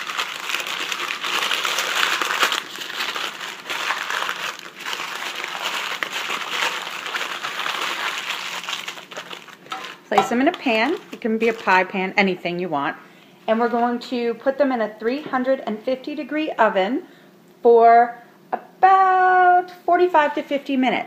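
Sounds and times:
foil and paper crinkling: 0.0 - 12.2.

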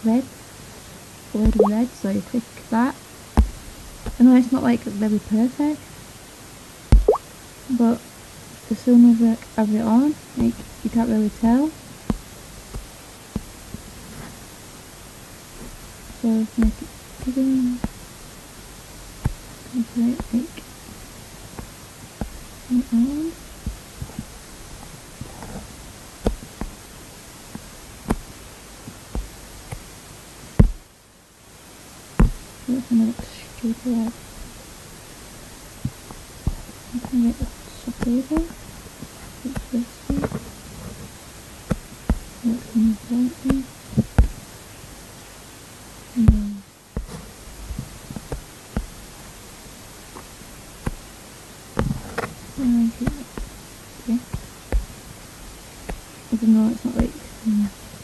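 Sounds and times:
faint steady hiss: 0.0 - 58.0
soft clicks and taps: 1.4 - 1.8, 6.9 - 7.2, 27.5 - 29.9, 30.6 - 30.8, 32.2 - 32.5, 56.8 - 57.2
touchscreen tapping: 1.4 - 1.8, 7.0 - 7.2.

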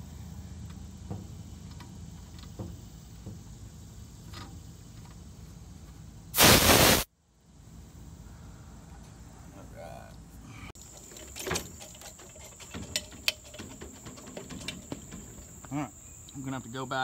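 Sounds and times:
refrigerant hissing: 6.3 - 7.1.

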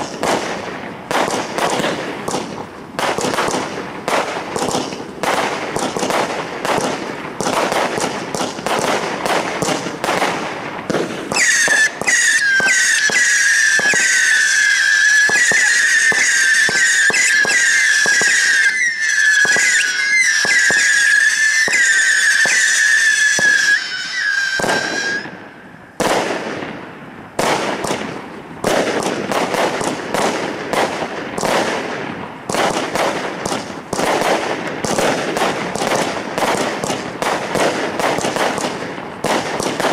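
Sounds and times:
firework crackling and popping: 0.0 - 39.9
shrill wavering firework whistle: 10.9 - 25.8.

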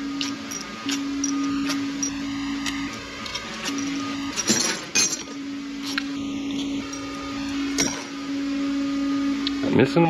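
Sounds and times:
machine hum: 0.0 - 10.0
metal tools clinking: 0.2 - 2.2, 3.2 - 5.4, 6.5 - 8.1.

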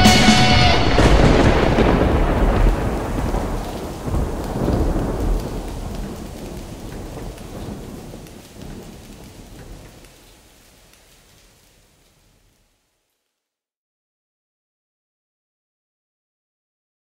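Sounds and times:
rolling thunder: 0.0 - 12.5
rain: 0.0 - 13.6.

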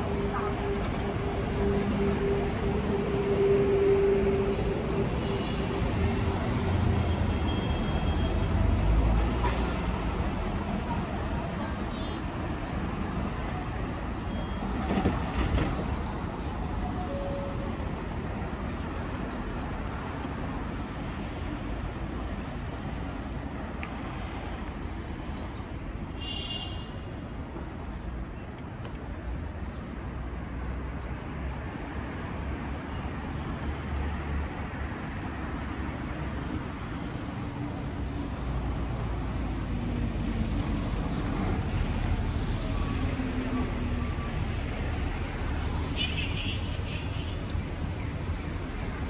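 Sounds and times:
road traffic passing: 0.0 - 49.0
short high squeal: 42.3 - 44.3.

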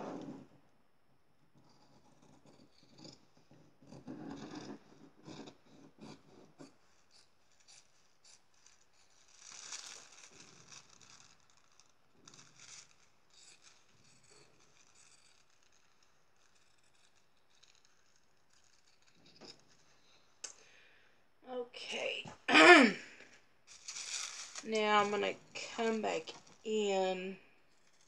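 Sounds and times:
paper rustling: 7.6 - 20.1, 23.7 - 26.7.

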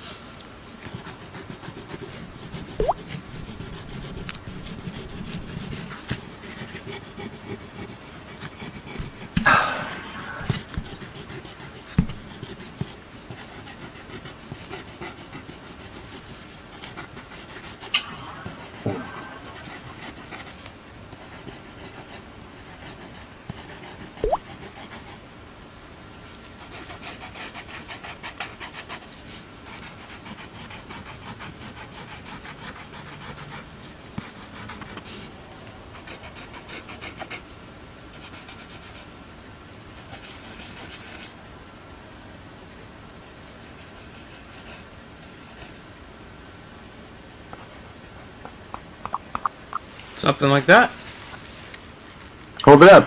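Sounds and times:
pencil scratching on paper: 0.9 - 25.2, 26.6 - 35.3, 36.0 - 37.4, 43.6 - 45.8.

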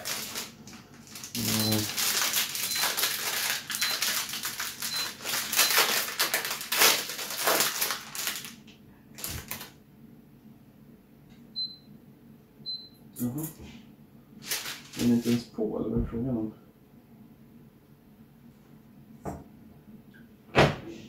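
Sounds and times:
plastic bag crinkling: 0.0 - 9.8, 14.4 - 15.4.

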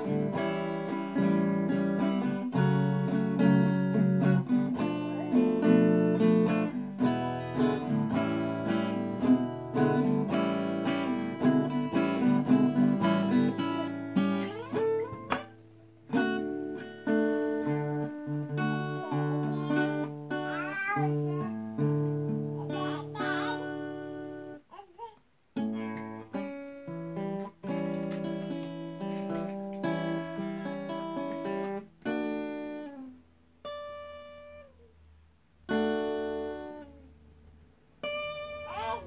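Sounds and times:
baby babbling: 0.0 - 2.0, 4.8 - 6.2, 14.3 - 15.3, 18.5 - 26.3, 38.2 - 39.0
acoustic guitar picking: 0.0 - 24.6, 25.6 - 34.8, 35.7 - 37.1, 38.0 - 39.0.

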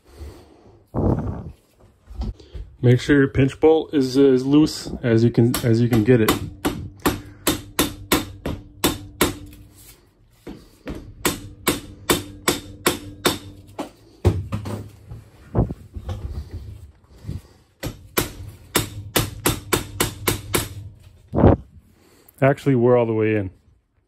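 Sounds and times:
mallet knocking on metal: 5.5 - 9.5, 10.9 - 13.6, 17.8 - 20.8.

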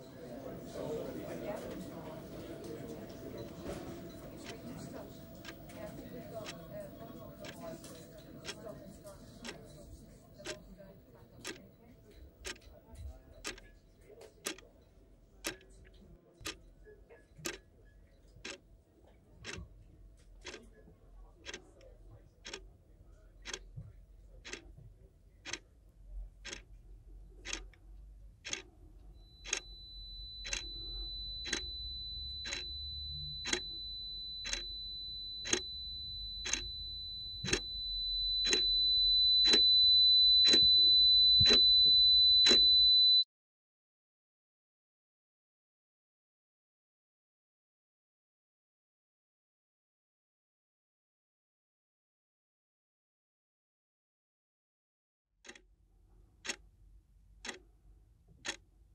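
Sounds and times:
clock ticking: 3.4 - 8.8, 9.4 - 9.7, 10.4 - 10.7, 11.4 - 11.6, 12.4 - 12.7, 13.4 - 13.6, 14.4 - 14.7, 15.4 - 15.6, 17.4 - 17.6, 20.4 - 20.6, 21.4 - 21.6, 22.4 - 22.6, 23.4 - 23.6, 24.4 - 24.6, 25.4 - 25.6, 26.4 - 26.7, 27.4 - 27.7, 28.4 - 28.6, 29.2 - 43.2, 57.4 - 57.6
high-pitched whine: 29.2 - 43.2.

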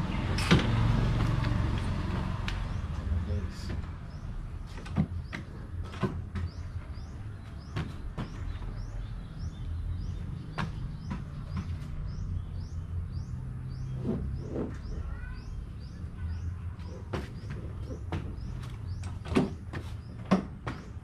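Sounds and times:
small bird chirping: 6.4 - 21.0.

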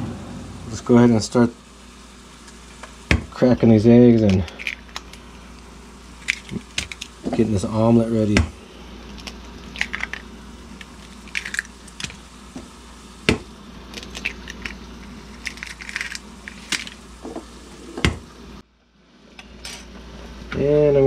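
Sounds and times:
steady low hum: 0.0 - 21.0
eggshells crackling and crunching: 6.2 - 7.2, 9.1 - 12.2, 13.8 - 17.2.

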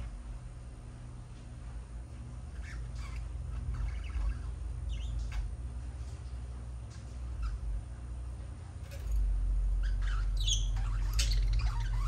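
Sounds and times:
steady low hum: 0.0 - 12.0
budgerigars chirping and chattering: 2.5 - 5.3, 9.8 - 12.0.

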